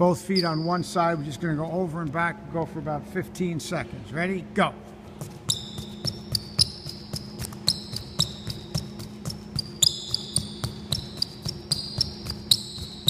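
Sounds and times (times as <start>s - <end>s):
sneaker squeaks: 0.3s - 1.2s, 4.9s - 13.0s.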